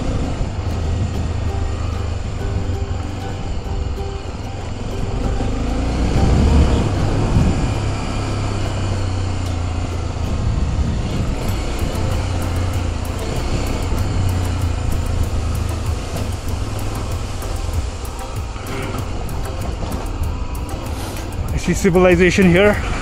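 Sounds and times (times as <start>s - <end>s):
motorcycle engine accelerating: 0.0s - 23.0s.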